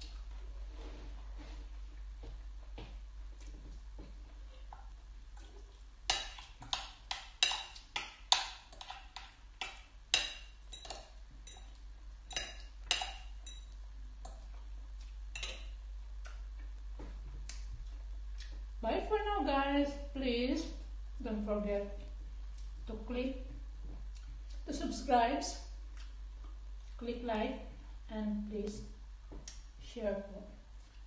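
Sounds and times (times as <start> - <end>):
fork and spoon clinking on glass bowl: 7.4 - 13.7.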